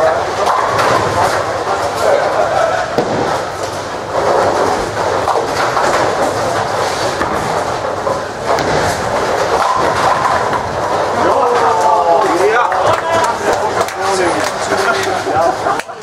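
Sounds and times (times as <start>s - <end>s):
bowling balls rolling: 0.0s - 16.0s
bowling pins clattering: 0.0s - 16.0s.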